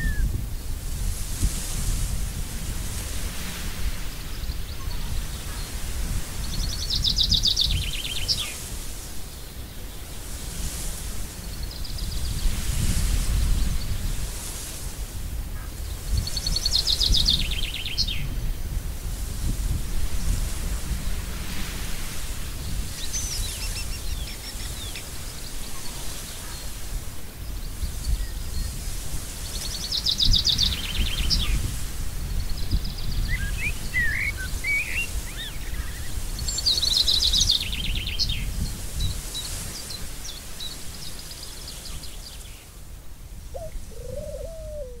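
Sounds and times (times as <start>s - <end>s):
birds chirping: 32.5s - 38.3s, 43.5s - 45.0s.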